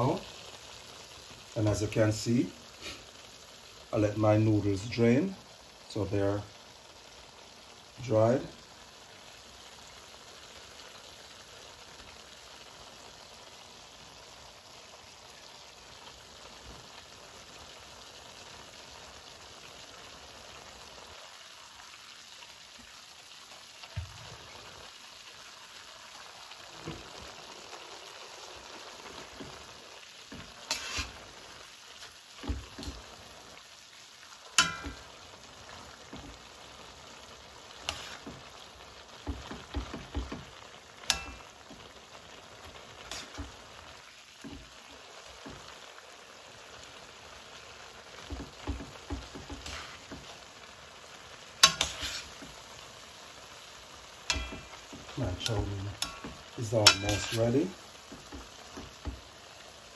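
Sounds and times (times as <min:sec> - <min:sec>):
food sizzling in a pan: 0:00.0 - 0:59.9
knocks and scrapes in pan: 0:30.3 - 0:31.2, 0:32.4 - 0:33.1, 0:37.8 - 0:38.5, 0:39.2 - 0:40.5, 0:43.1 - 0:43.6, 0:48.2 - 0:50.3, 0:51.6 - 0:52.6, 0:54.3 - 0:59.2.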